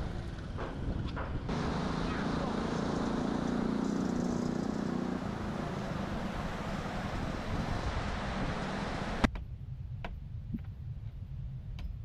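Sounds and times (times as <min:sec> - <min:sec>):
vehicle engine running: 0:00.0 - 0:09.3
river rushing in flood: 0:05.2 - 0:09.3.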